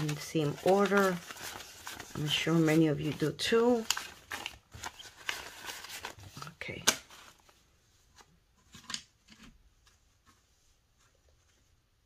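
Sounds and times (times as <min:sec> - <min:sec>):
paper banknotes rustling: 0:00.0 - 0:07.6.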